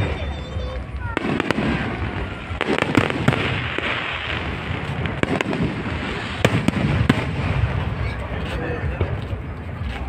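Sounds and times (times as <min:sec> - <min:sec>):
fireworks bangs: 0:00.0 - 0:09.6
fireworks crackling: 0:00.0 - 0:10.0.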